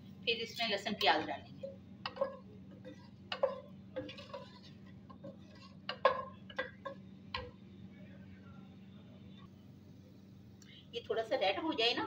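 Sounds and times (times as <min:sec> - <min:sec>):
wooden spoon knocking on steel pot: 0:01.0 - 0:07.6.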